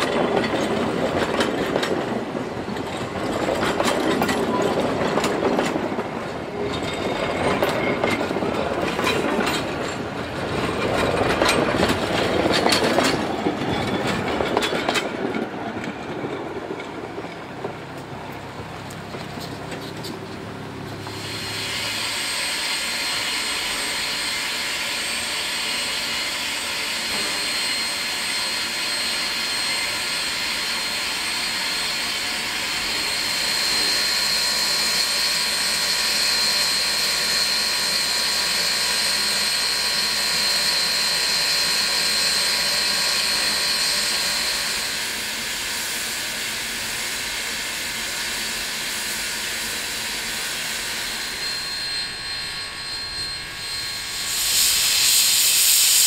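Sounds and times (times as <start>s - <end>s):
steam locomotive hissing: 0.0s - 56.0s
thin high whistle-like tone: 21.1s - 32.3s, 32.9s - 47.1s, 48.1s - 56.0s.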